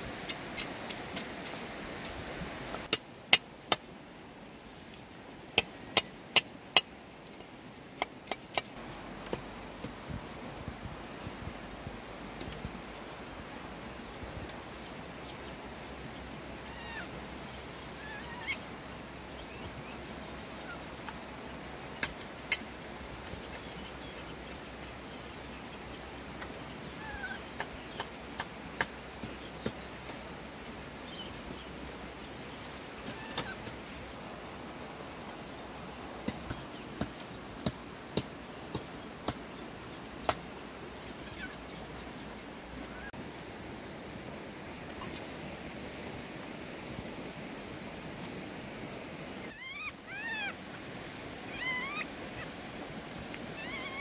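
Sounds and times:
steady outdoor hiss: 0:00.0 - 0:54.0
monkey squealing: 0:16.7 - 0:17.1, 0:18.0 - 0:18.6, 0:27.0 - 0:27.4, 0:33.1 - 0:33.6, 0:49.5 - 0:50.6, 0:51.5 - 0:52.5, 0:53.6 - 0:54.0.

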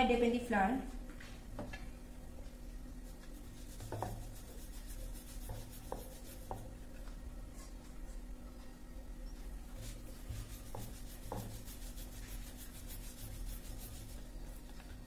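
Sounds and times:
rolling pin rubbing dough: 0:02.9 - 0:07.2, 0:09.4 - 0:15.0.

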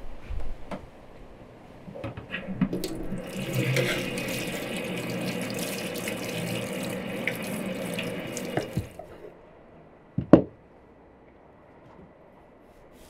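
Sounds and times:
tap water running into sink: 0:02.6 - 0:09.1.

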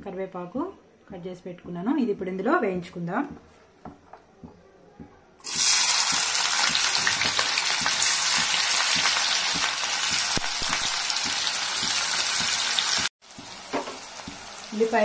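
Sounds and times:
onions sizzling in hot oil: 0:05.4 - 0:15.0.

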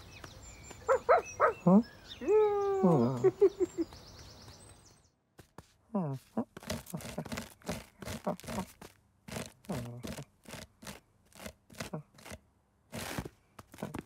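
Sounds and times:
claws scratching post: 0:05.4 - 0:14.0.

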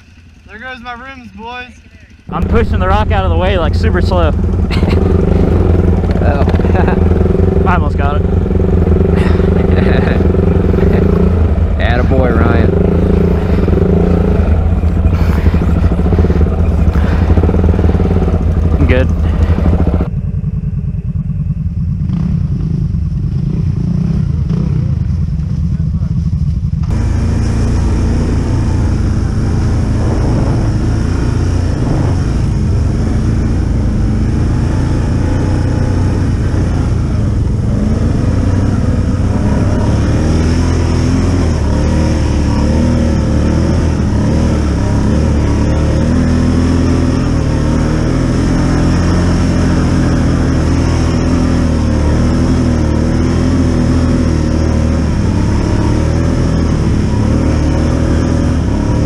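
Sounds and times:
quad bike engine running: 0:00.0 - 0:59.0.

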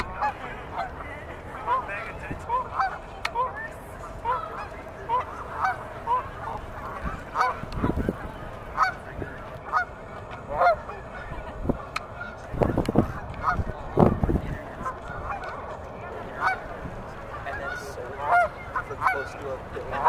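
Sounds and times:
geese honking: 0:00.0 - 0:20.0.

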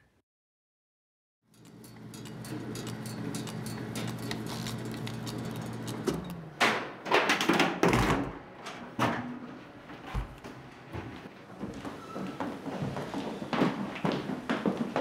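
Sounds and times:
photocopier humming: 0:01.5 - 0:06.6.

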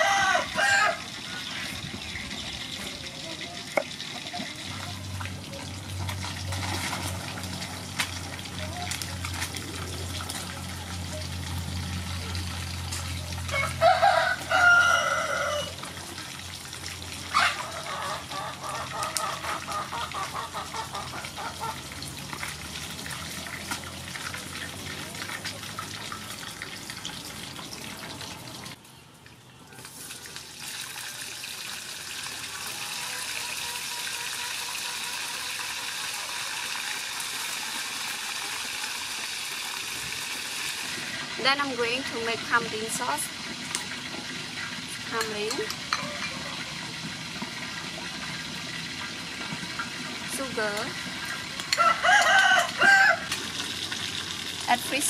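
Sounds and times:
rooster crowing: 0:00.0 - 0:01.4, 0:13.5 - 0:15.8, 0:45.9 - 0:46.7, 0:51.7 - 0:53.4
fish sizzling in hot oil: 0:00.0 - 0:28.8, 0:29.8 - 0:55.0.

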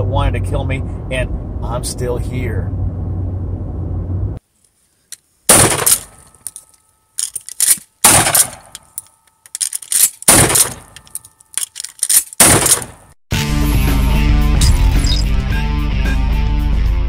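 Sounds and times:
shotgun blasts: 0:05.5 - 0:06.2, 0:08.0 - 0:08.7, 0:10.3 - 0:10.9, 0:12.4 - 0:13.0.

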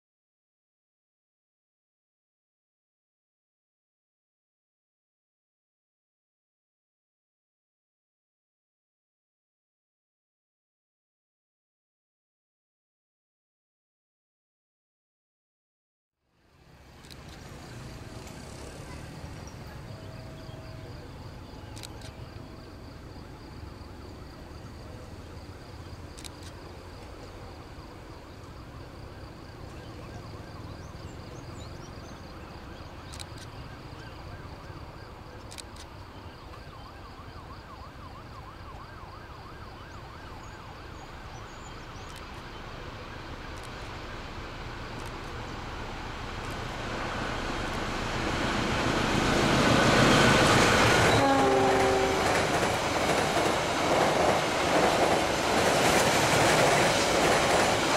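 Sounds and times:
train low rumble: 0:16.4 - 0:37.7, 0:40.3 - 0:57.9.

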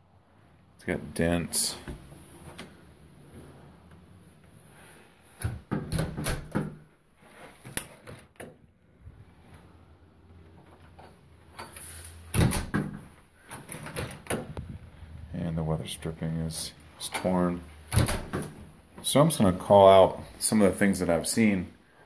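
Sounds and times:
door knocks and rattles: 0:05.4 - 0:06.8, 0:12.4 - 0:13.1, 0:17.9 - 0:18.6.

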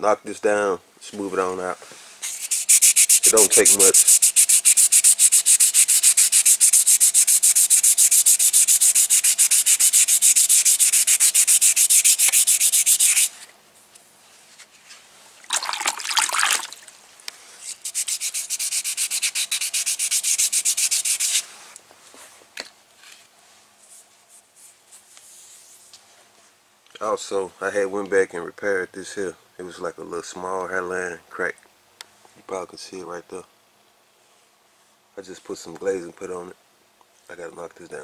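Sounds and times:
sandpaper sanding strokes: 0:02.2 - 0:13.4, 0:17.6 - 0:21.6.

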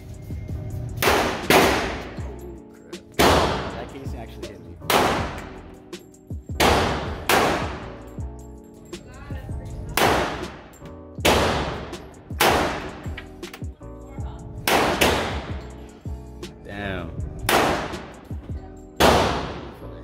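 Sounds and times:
pistol shots echoing: 0:01.0 - 0:02.2, 0:03.2 - 0:03.8, 0:04.9 - 0:05.5, 0:06.6 - 0:07.8, 0:10.0 - 0:13.1, 0:14.7 - 0:15.5, 0:17.5 - 0:18.3, 0:19.0 - 0:19.8.

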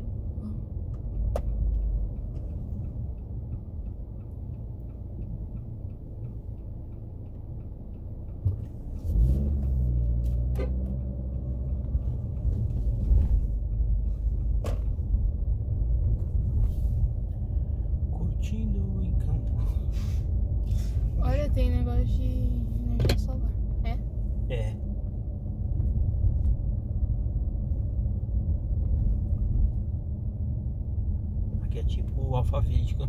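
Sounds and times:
turn indicator ticking: 0:00.0 - 0:19.6, 0:20.3 - 0:33.0
car engine and tyre rumble: 0:00.0 - 0:33.0.

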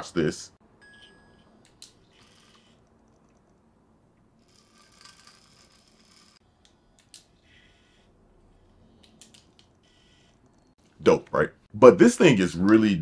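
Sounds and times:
faint motor whir: 0:02.0 - 0:03.6, 0:04.3 - 0:10.8.

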